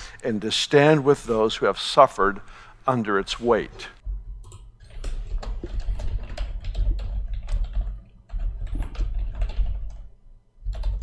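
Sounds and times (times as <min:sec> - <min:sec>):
fast typing on keyboard: 0:04.5 - 0:11.0.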